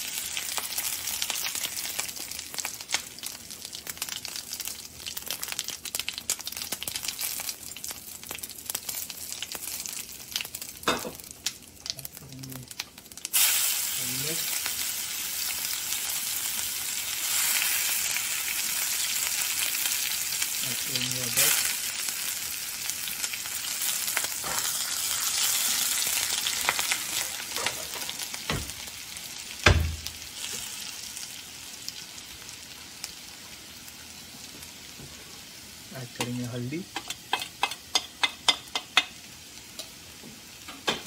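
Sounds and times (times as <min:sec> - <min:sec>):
spices sizzling in hot oil: 0:00.0 - 0:41.0.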